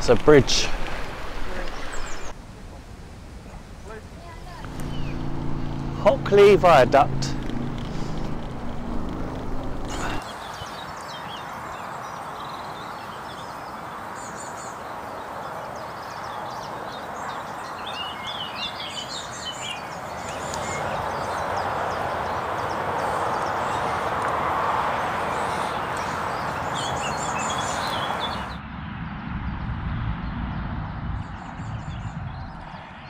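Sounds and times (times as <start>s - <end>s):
small birds chirping: 1.3s - 2.4s, 3.4s - 28.6s
steady rushing background: 3.2s - 10.2s.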